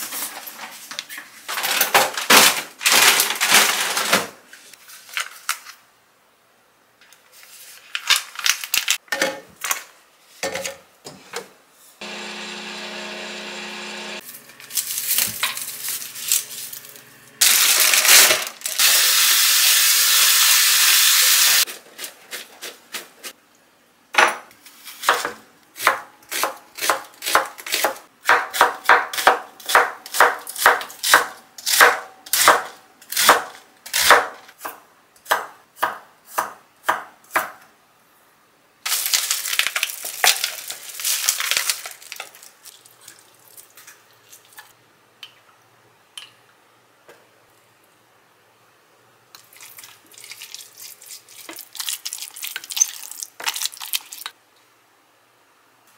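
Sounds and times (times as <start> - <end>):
plastic film crackling: 2.1 - 4.2, 7.8 - 9.0, 14.3 - 18.8, 38.9 - 42.8, 49.6 - 54.3.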